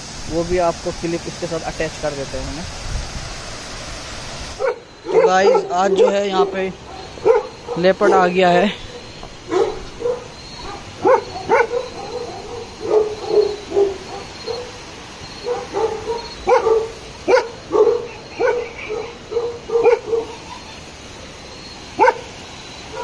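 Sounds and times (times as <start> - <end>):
dog barking: 4.6 - 20.8, 22.0 - 22.3.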